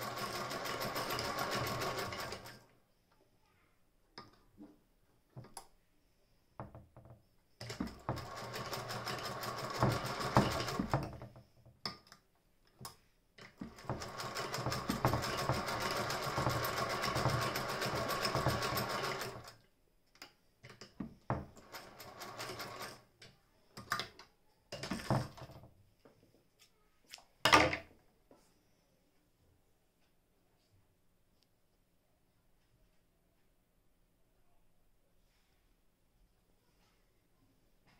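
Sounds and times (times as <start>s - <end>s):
sewing machine clatter: 0.0s - 2.6s, 7.6s - 11.4s, 13.4s - 19.6s, 21.4s - 23.0s
sewing machine crank clicks: 0.0s - 2.6s, 7.6s - 11.2s, 13.4s - 19.6s.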